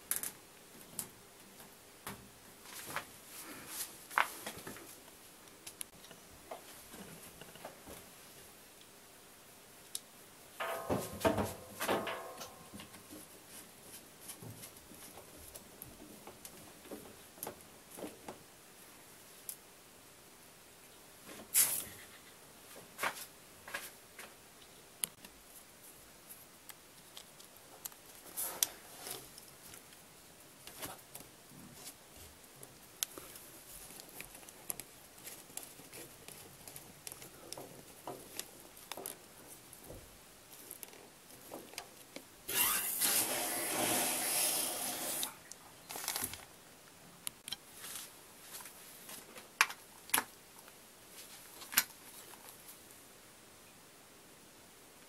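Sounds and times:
water hissing rush: 0:42.6 - 0:45.4.

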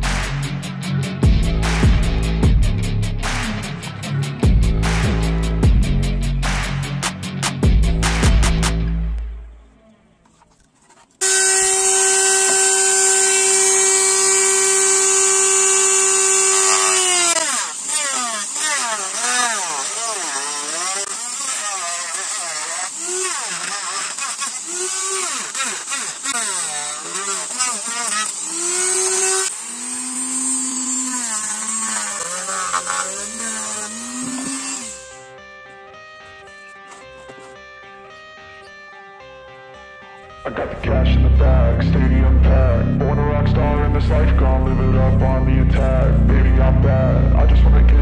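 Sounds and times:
background music: 0:00.0 - 0:10.6, 0:32.2 - 0:48.0
rotary tool whining: 0:10.2 - 0:37.7
high grinding hiss: 0:11.2 - 0:35.3.

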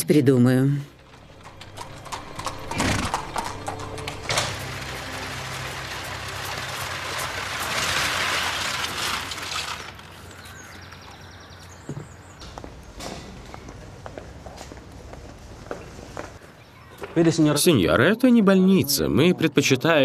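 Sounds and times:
hooves clip-clopping: 0:01.0 - 0:16.4
wheels crunching over gravel: 0:01.0 - 0:16.4.

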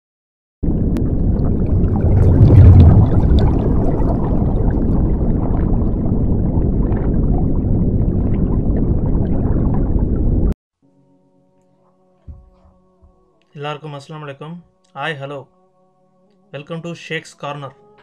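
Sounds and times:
underwater bubbling and rushing water: 0:00.6 - 0:10.6.

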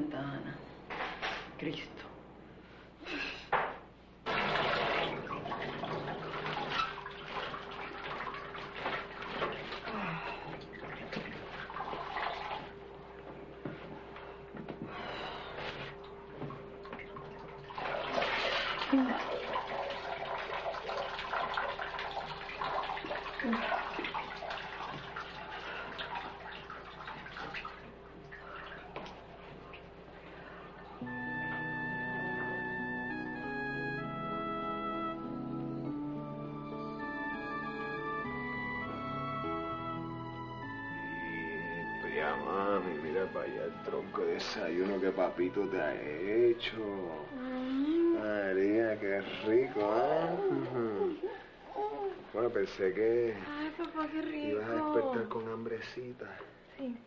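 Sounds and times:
shower water running: 0:04.2 - 0:32.7, 0:40.7 - 0:47.4, 0:48.0 - 0:56.1
shower water spraying: 0:04.3 - 0:12.8, 0:17.1 - 0:29.9.

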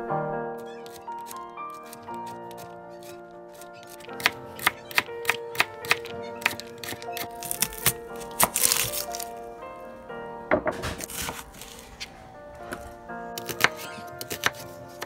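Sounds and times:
background music: 0:00.0 - 0:15.0
knife chopping on cutting board: 0:03.9 - 0:09.0, 0:13.4 - 0:15.0.

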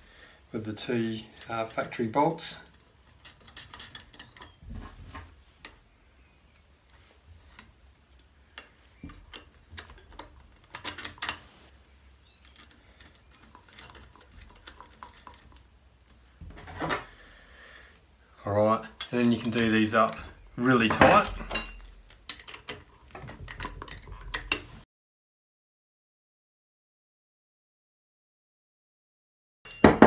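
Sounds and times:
metal bolts clicking: 0:02.6 - 0:04.6, 0:08.2 - 0:11.4, 0:19.0 - 0:24.7.

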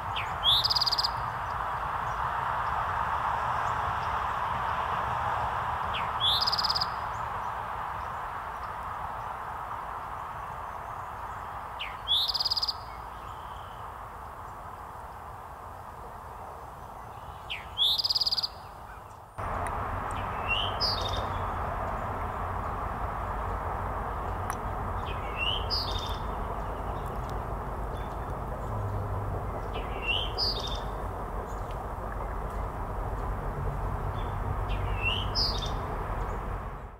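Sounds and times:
bird song with buzzy trill: 0:00.0 - 0:01.6, 0:05.9 - 0:07.3, 0:10.9 - 0:13.8, 0:17.0 - 0:19.2, 0:20.2 - 0:21.5, 0:24.3 - 0:27.2, 0:27.8 - 0:31.8, 0:34.1 - 0:36.6.

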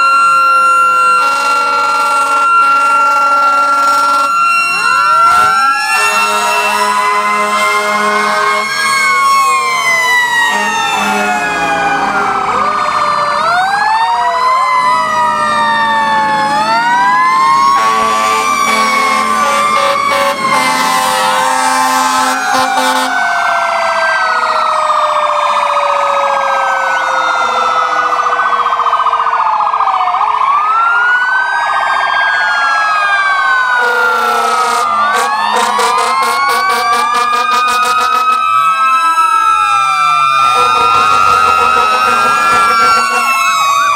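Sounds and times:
electronic sirens wailing and yelping: 0:00.0 - 0:43.9
mechanical siren winding down: 0:00.0 - 0:43.9
fire truck horn blasts: 0:01.1 - 0:04.7, 0:05.3 - 0:09.6, 0:10.3 - 0:12.7, 0:17.6 - 0:23.3, 0:33.8 - 0:38.7, 0:40.4 - 0:43.6.

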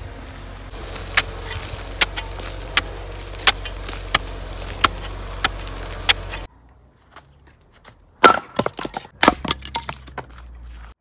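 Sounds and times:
steady low hum: 0:00.0 - 0:07.1.

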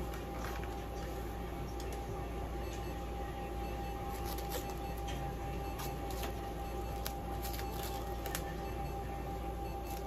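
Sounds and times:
low electrical hum: 0:00.0 - 0:10.0
tape clicking and rustling: 0:07.0 - 0:08.5.

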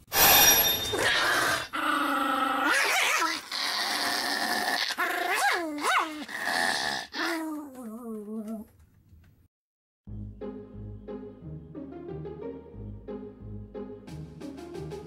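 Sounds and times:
small dog growling and snarling: 0:01.0 - 0:08.7.

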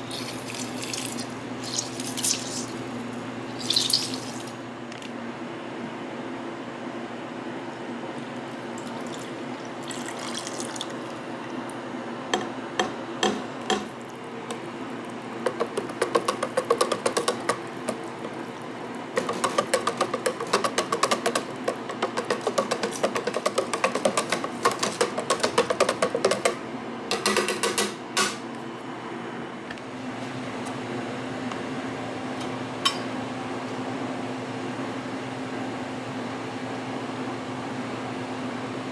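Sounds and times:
liquid pouring into plastic tub: 0:00.0 - 0:02.8, 0:03.5 - 0:04.6, 0:08.5 - 0:11.2
whisk clicking against tub: 0:15.4 - 0:27.9.

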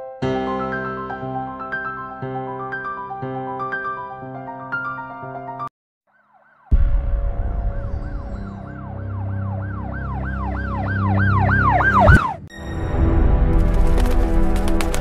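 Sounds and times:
low rumbling drone: 0:06.7 - 0:14.5
siren wailing in sweeps: 0:07.4 - 0:12.8
sharp rising whoosh: 0:10.7 - 0:12.5.

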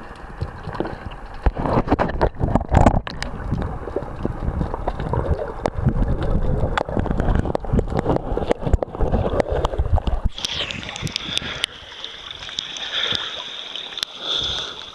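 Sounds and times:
underwater clicks and knocks: 0:00.0 - 0:11.8
muffled underwater rumble: 0:00.0 - 0:13.4.

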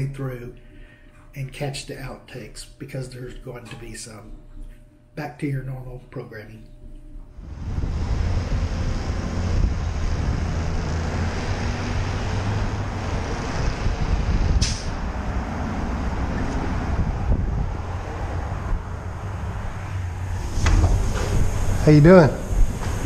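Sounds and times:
street traffic noise: 0:07.4 - 0:23.0
vehicle engine humming: 0:07.4 - 0:23.0
short sharp hiss: 0:14.6 - 0:15.0.

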